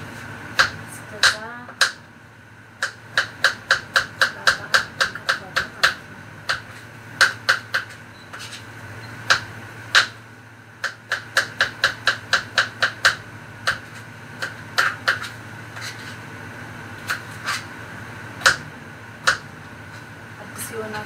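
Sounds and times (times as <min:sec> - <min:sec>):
knife chopping on cutting board: 0:00.6 - 0:02.0, 0:02.8 - 0:08.6, 0:09.3 - 0:10.2, 0:10.8 - 0:16.2, 0:17.0 - 0:17.6, 0:18.4 - 0:18.6.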